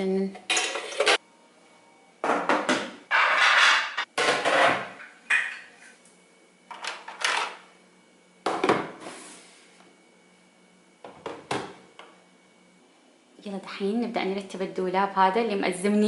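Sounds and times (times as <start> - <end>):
dishes clattering and knocking: 0.5 - 1.2, 2.2 - 5.9.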